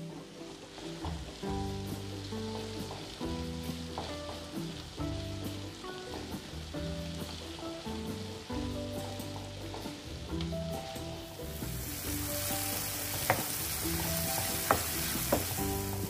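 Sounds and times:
masala sizzling in a pan: 0:00.0 - 0:16.0
soft background music: 0:00.0 - 0:16.0
spatula knocking against pan: 0:13.2 - 0:13.6, 0:14.4 - 0:15.7.

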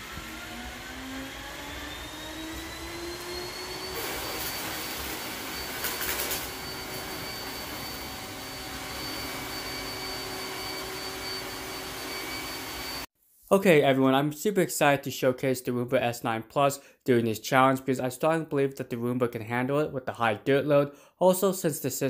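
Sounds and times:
robot vacuum motor whine: 0:00.0 - 0:13.1.

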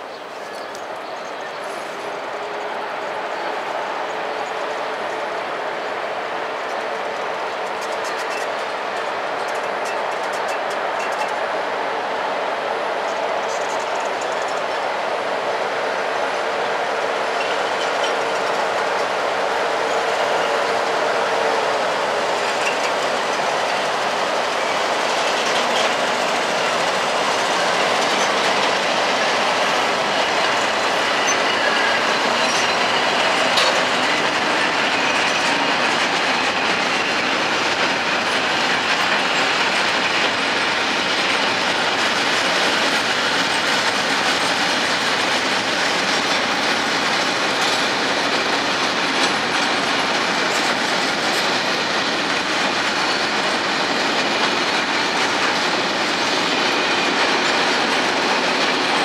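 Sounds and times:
locomotive hum: 0:00.0 - 0:59.0
train wheels clattering on rails: 0:00.0 - 0:59.0.

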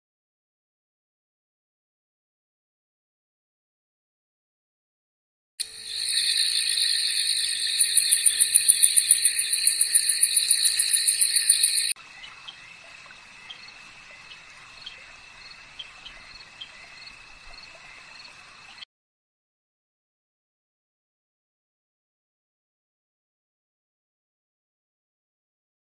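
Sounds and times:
regular chirps: 0:05.6 - 0:12.0
insects and frogs trilling: 0:05.6 - 0:18.8.

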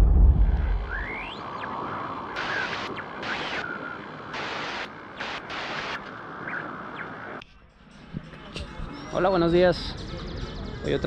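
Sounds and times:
static-like hiss: 0:00.0 - 0:07.4
bursts of high hiss: 0:02.4 - 0:06.1.

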